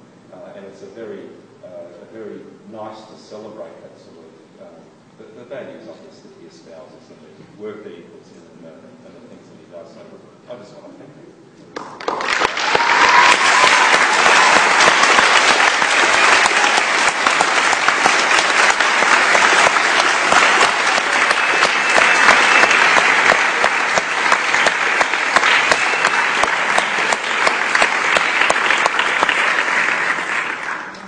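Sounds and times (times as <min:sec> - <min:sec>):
audience applauding: 0:11.8 - 0:31.0.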